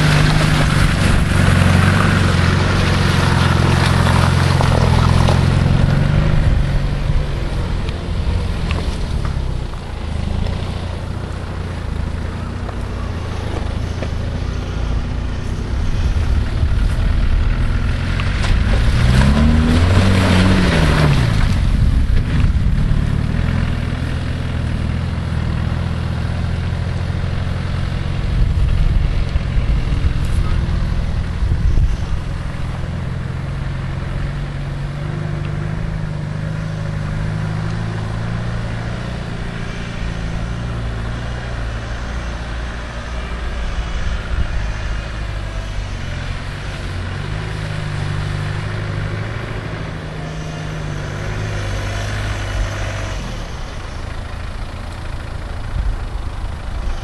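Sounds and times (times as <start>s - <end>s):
car engine pulling hard through mud: 0.0s - 57.0s.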